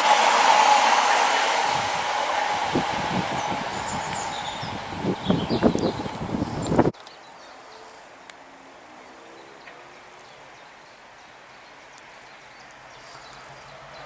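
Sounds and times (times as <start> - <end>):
loud train noise: 0.0 - 6.9.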